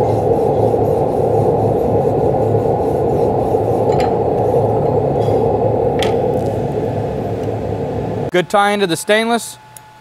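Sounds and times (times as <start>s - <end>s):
wire brush scrubbing metal: 0.0s - 5.5s.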